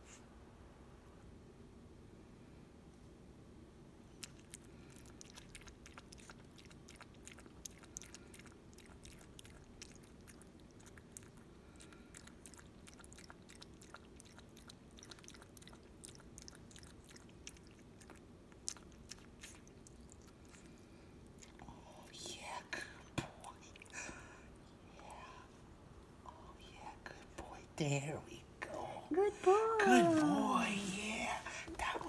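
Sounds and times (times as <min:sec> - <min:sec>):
puppy lapping water from bowl: 0:04.2 - 0:20.7.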